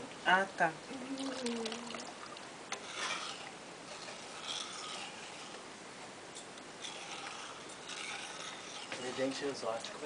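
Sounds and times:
objects rustling and scraping: 2.7 - 5.7, 6.3 - 10.0.

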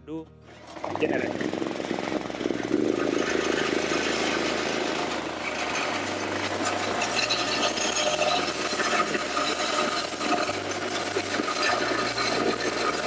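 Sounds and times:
petrol engine running: 0.5 - 13.0.

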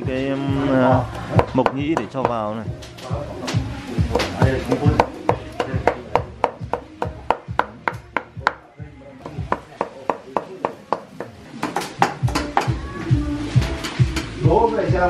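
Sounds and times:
cleaver chopping on wooden block: 4.1 - 8.6.

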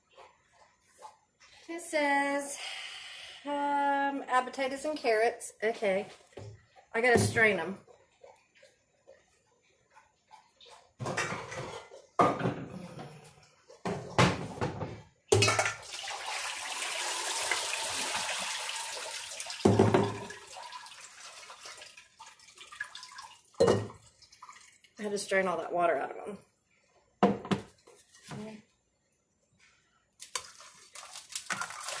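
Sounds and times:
kitchenware clattering: 10.8 - 12.9, 13.7 - 15.8, 23.6 - 24.1
water pouring into sink: 15.5 - 25.4, 30.2 - 32.0.

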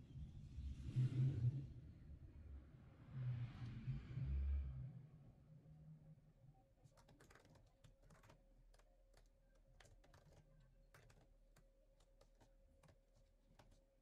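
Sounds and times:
laptop keyboard typing: 7.0 - 13.9.

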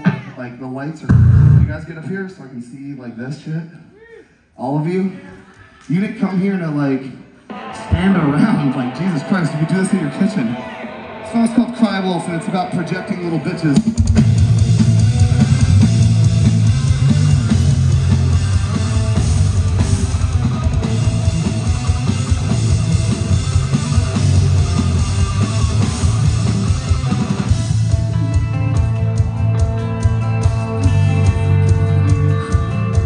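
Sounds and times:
loud rock band playing: 1.1 - 1.8, 7.5 - 33.0
ringing held guitar notes: 7.5 - 14.1.

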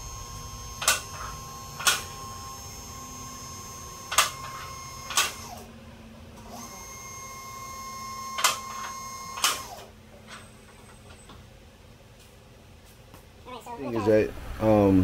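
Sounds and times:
hydraulic pump motor humming: 0.0 - 5.6.

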